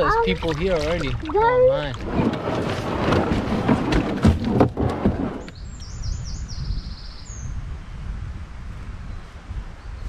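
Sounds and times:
paddle splashing water: 0.0s - 5.5s
wind rumbling on microphone: 0.0s - 10.0s
bird chirping: 5.4s - 7.6s.

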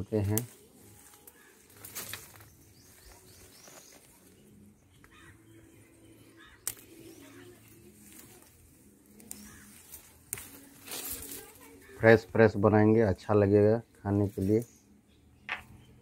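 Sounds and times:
leaves rustling: 0.0s - 15.0s
stem snapping: 0.2s - 2.5s, 6.4s - 11.6s, 15.5s - 15.8s
faint bird calls: 1.2s - 8.0s, 9.1s - 10.1s.

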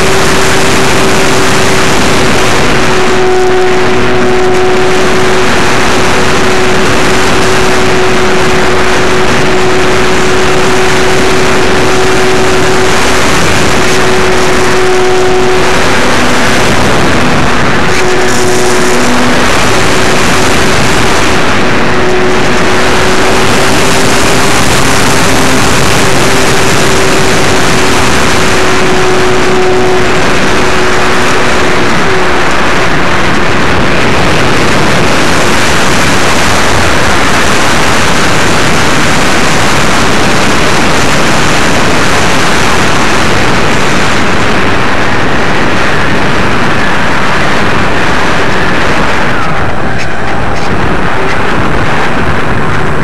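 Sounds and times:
electric motor and propeller whine: 0.0s - 53.0s
wind rush over microphone: 0.0s - 53.0s.

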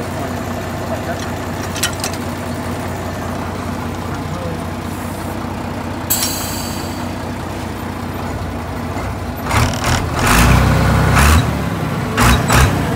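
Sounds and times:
tractor diesel engine idling: 0.0s - 10.2s.

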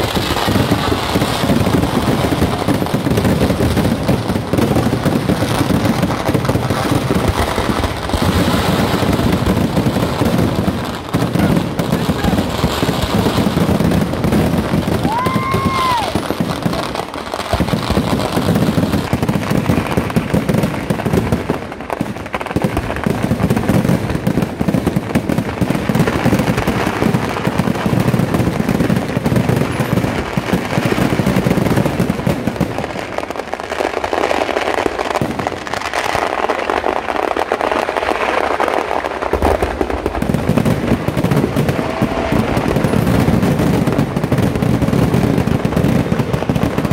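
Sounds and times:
fireworks banging and crackling: 0.0s - 46.9s
firework whistle: 15.0s - 17.7s, 41.2s - 44.0s.

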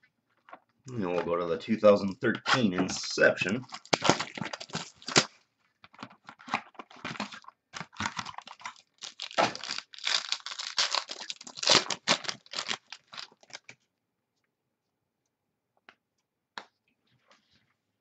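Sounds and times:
foil wrapper tearing and crinkling: 3.6s - 5.3s, 6.3s - 13.6s.

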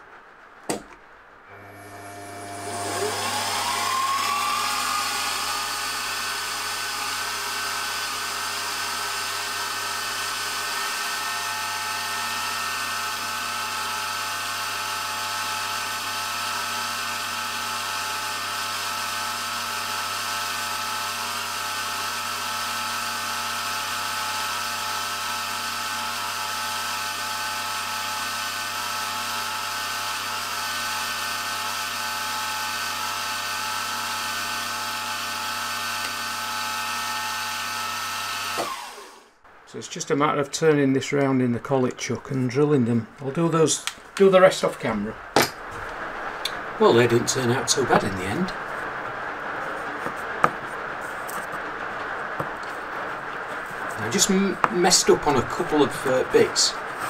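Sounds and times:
drill spindle whining: 1.5s - 39.4s.

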